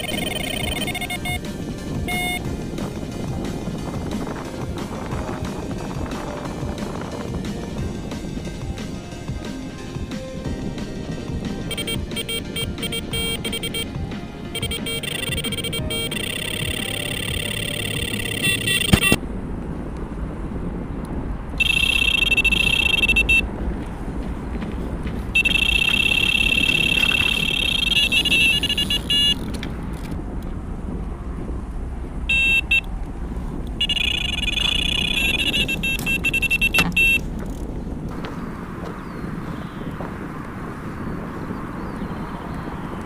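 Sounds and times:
bite alarm beeping: 0.0 - 1.5, 2.1 - 2.4, 11.7 - 19.2, 21.6 - 23.4, 25.4 - 29.4, 32.3 - 32.9, 33.8 - 37.2
steady low rumble: 0.0 - 43.0.

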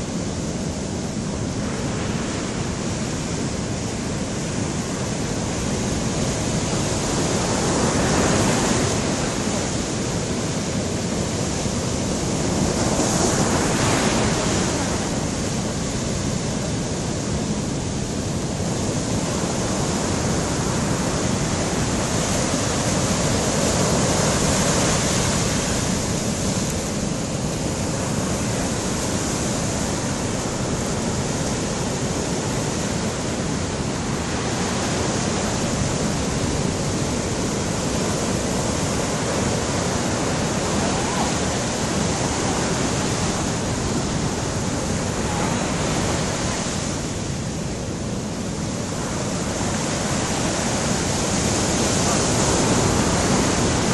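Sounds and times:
sea waves breaking on rocks: 18.8 - 53.9.

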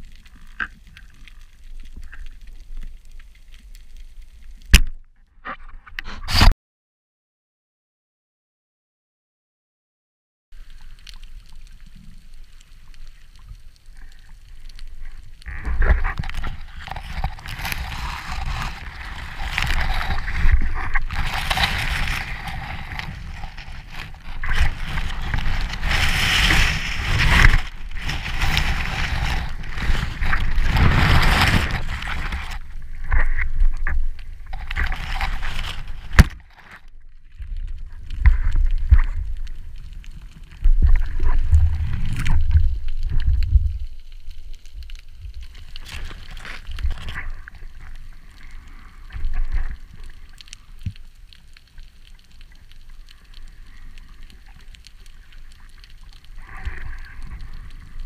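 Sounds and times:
muffled underwater rushing: 11.4 - 44.2.

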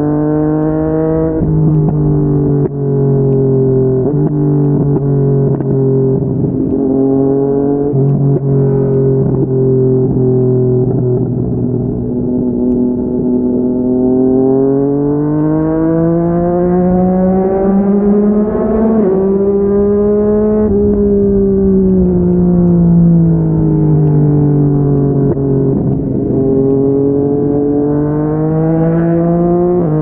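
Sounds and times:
motorcycle engine revving: 0.0 - 30.0.

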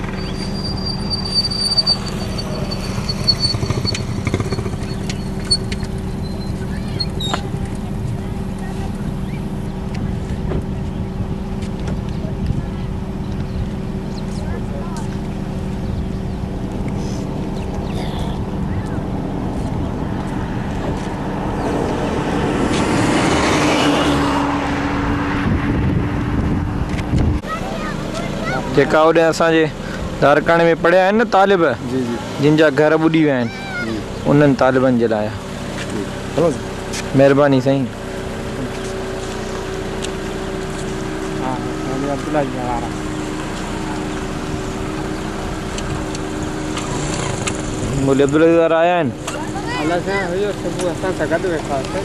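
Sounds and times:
high whine: 0.0 - 11.9
motorboat engine droning: 0.0 - 52.0
wind noise on microphone: 17.7 - 27.4.

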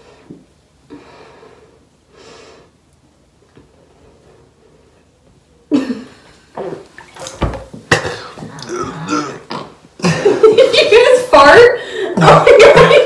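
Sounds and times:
man burping: 7.9 - 10.2
man coughing: 7.9 - 10.3.

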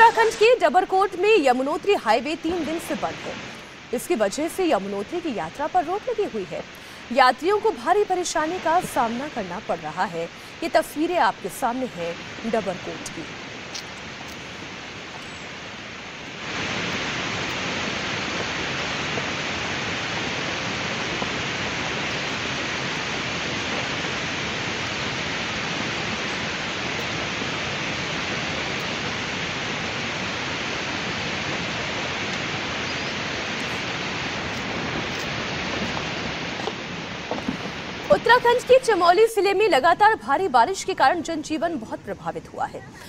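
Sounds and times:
landslide roar: 12.2 - 39.3.

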